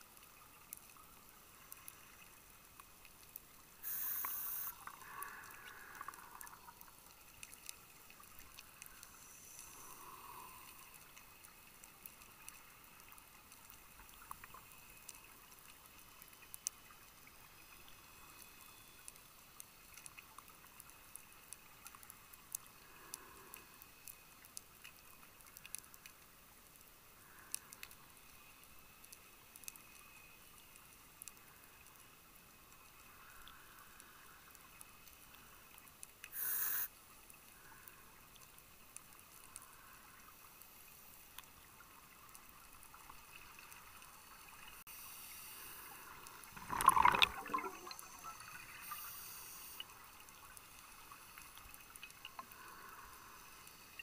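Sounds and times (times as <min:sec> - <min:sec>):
regulator hiss of inhale: 0:03.8 - 0:06.7, 0:08.9 - 0:11.2, 0:22.7 - 0:24.0, 0:36.2 - 0:38.2, 0:44.9 - 0:46.5, 0:47.9 - 0:50.0, 0:52.4 - 0:54.0
sharp underwater clicks: 0:46.2 - 0:48.0
exhaled bubbles gurgling: 0:46.4 - 0:48.8.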